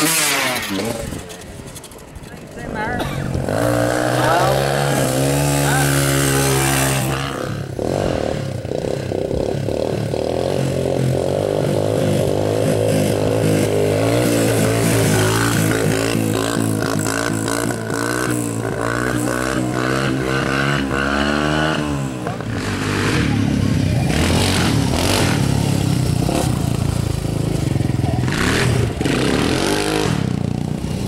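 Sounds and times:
dirt bike engine revving: 0:00.0 - 0:31.0.

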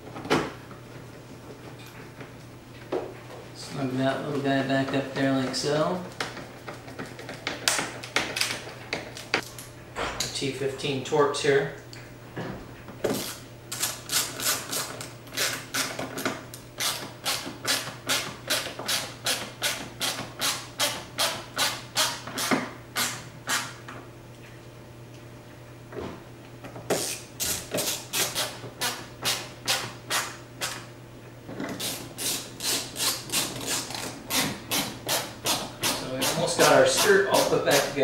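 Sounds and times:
hand ratchet clicking: 0:31.8 - 0:38.0.

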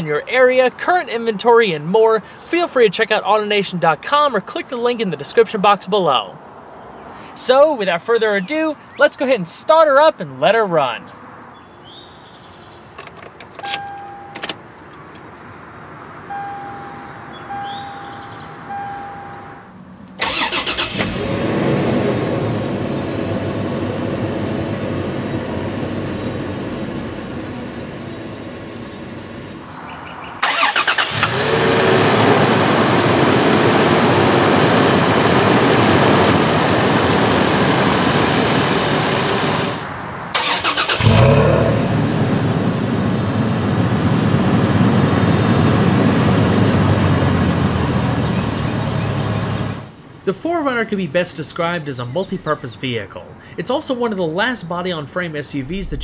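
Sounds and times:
key clicking in ignition: 0:13.0 - 0:15.3
chime beeps: 0:13.6 - 0:14.4, 0:16.3 - 0:19.6
engine cranking and starting: 0:20.2 - 0:21.9, 0:30.4 - 0:32.6, 0:40.4 - 0:41.8.

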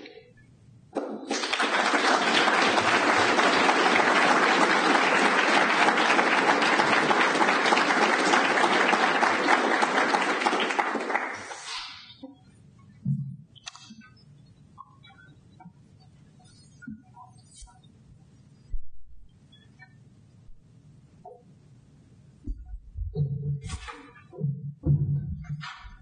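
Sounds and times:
audience applause: 0:01.1 - 0:11.8.

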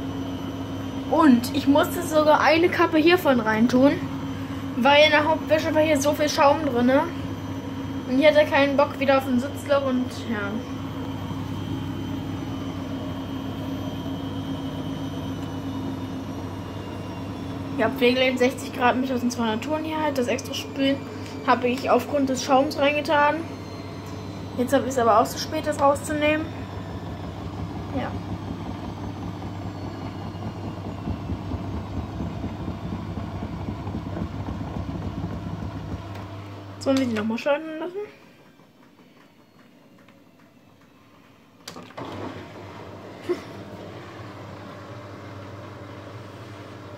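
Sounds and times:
faint high whine: 0:00.0 - 0:41.7
washing machine motor hum: 0:00.0 - 0:46.9
washing machine drum rumbling: 0:23.9 - 0:37.8.

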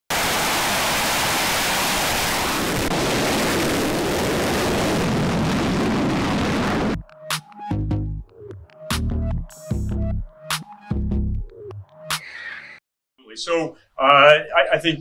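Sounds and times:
jet engines roaring: 0:00.1 - 0:07.0.

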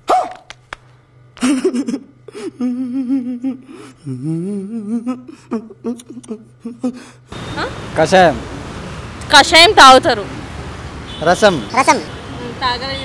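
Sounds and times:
faint low drone: 0:01.5 - 0:07.2
man humming wavering: 0:01.9 - 0:07.3.

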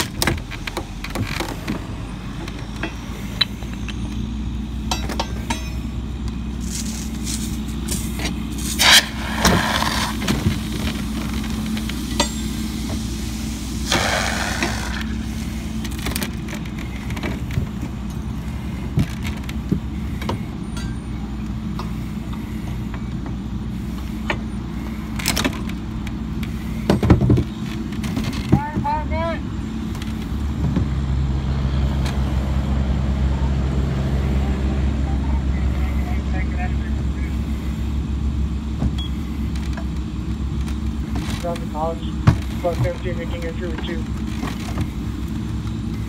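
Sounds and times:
engine drone: 0:00.0 - 0:46.0
pry bar clanking and scraping metal: 0:04.9 - 0:06.0.

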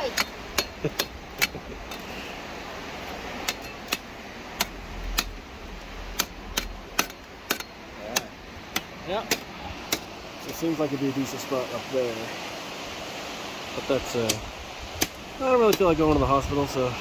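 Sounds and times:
metal tool striking rock: 0:00.0 - 0:02.0, 0:03.4 - 0:05.4, 0:06.1 - 0:10.1, 0:15.0 - 0:16.2
steady hiss: 0:00.0 - 0:17.0.

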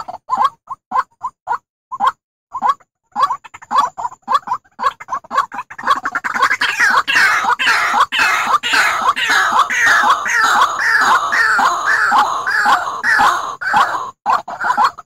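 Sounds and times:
waterhen calling: 0:03.5 - 0:15.0.

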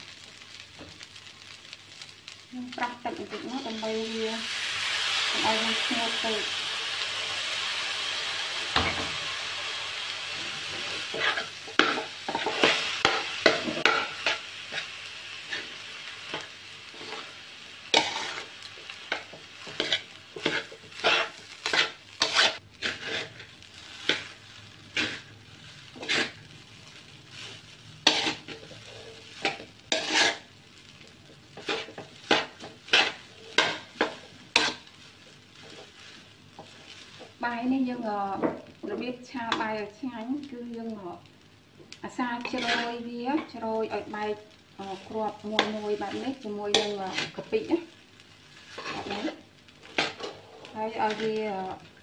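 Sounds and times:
rice sizzling in a wok: 0:00.0 - 0:52.0
metal spatula scraping a wok: 0:10.3 - 0:30.5, 0:31.5 - 0:37.3, 0:42.4 - 0:44.0, 0:44.8 - 0:47.7, 0:48.5 - 0:51.8.

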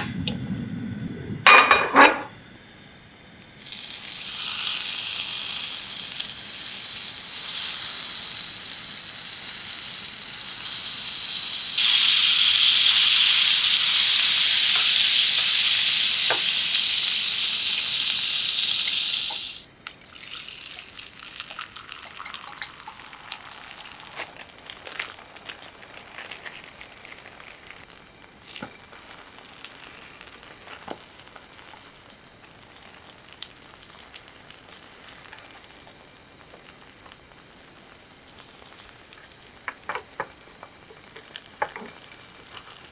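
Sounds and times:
butter sizzling in a frying pan: 0:03.4 - 0:42.9
egg frying sizzle: 0:03.4 - 0:42.9
crackling and pops of egg: 0:21.4 - 0:37.3, 0:38.2 - 0:42.9.

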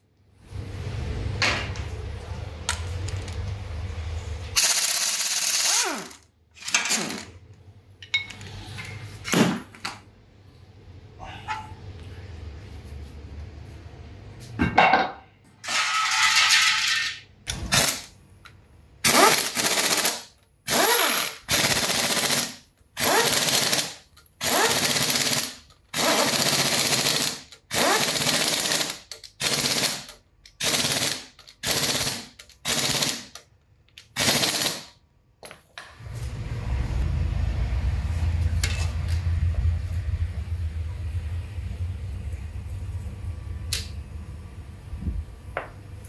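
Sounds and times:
pneumatic impact wrench hammering: 0:04.6 - 0:07.3, 0:19.0 - 0:33.4, 0:34.0 - 0:34.9
low rumble: 0:36.1 - 0:45.5.

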